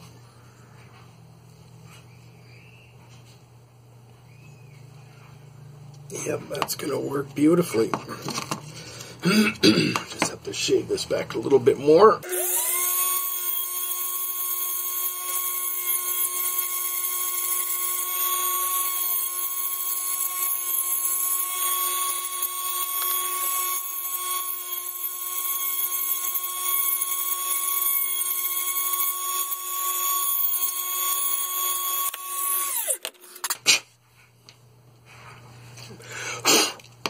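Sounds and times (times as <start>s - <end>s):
rotary tool high whine: 11.4s - 33.6s.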